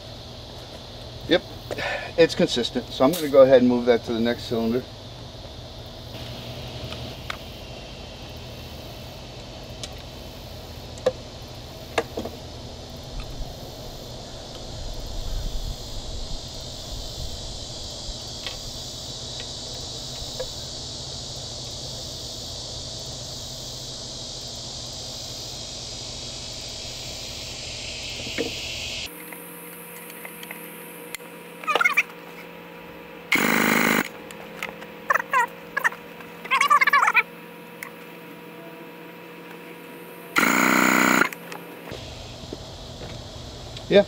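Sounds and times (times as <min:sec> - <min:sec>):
high insect drone: 0:00.0 - 0:44.0.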